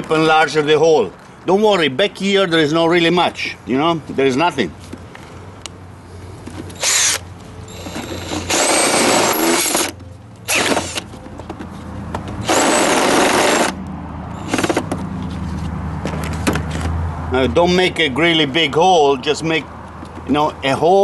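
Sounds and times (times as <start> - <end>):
cordless drill whining: 6.8 - 11.1, 12.4 - 13.8.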